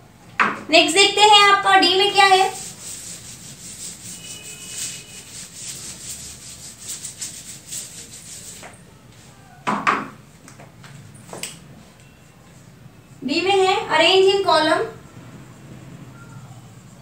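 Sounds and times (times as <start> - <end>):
duster rubbing a whiteboard: 1.7 - 8.8.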